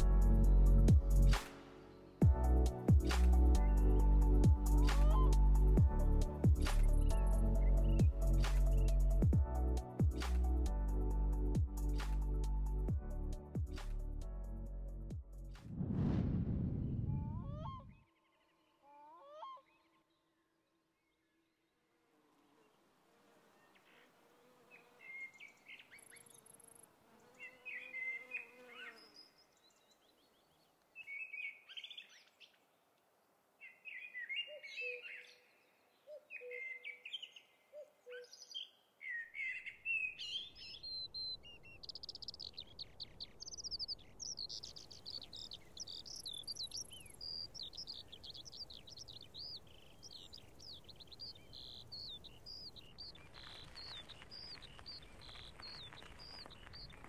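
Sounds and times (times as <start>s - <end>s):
fast continuous bird twittering: 3.4s - 9.4s, 38.1s - 57.0s.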